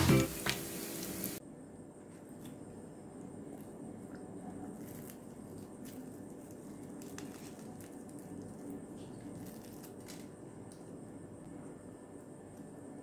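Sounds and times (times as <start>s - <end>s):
fried coating crackling: 4.7s - 10.4s.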